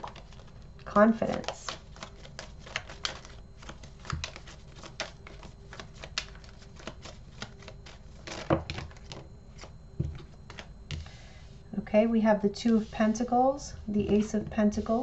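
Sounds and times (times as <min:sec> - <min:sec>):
cards shuffling: 0:00.0 - 0:10.7
cards slapping on table: 0:04.0 - 0:11.0.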